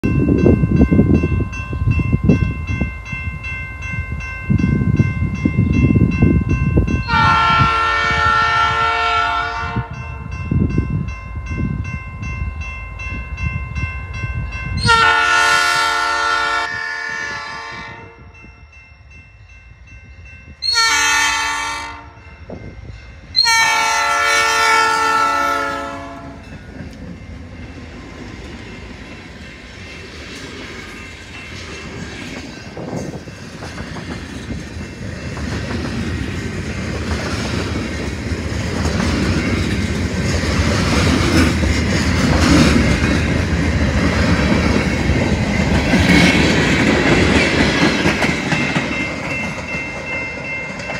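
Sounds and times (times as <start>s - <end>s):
crossing bell ringing: 0.0s - 50.9s
locomotive horn blasts: 7.0s - 10.0s, 14.8s - 18.4s, 20.6s - 22.2s, 23.4s - 26.5s.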